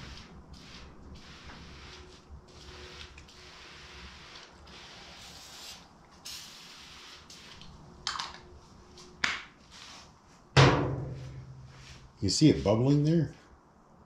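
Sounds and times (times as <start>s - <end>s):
aerosol can spraying: 0.0s - 7.7s.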